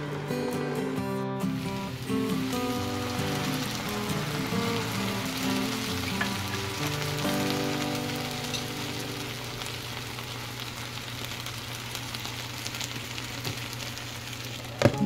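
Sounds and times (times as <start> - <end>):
vegetables sizzling in a frying pan: 1.4 - 15.0.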